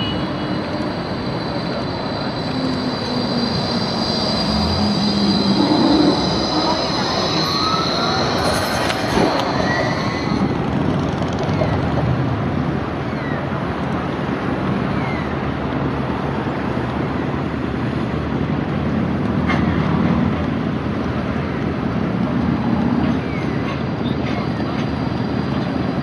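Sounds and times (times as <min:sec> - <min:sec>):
road traffic: 0:00.0 - 0:26.0.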